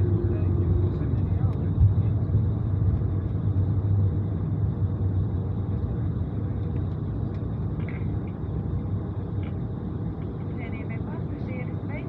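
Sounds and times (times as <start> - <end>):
airliner cabin rumble: 0.0 - 12.0.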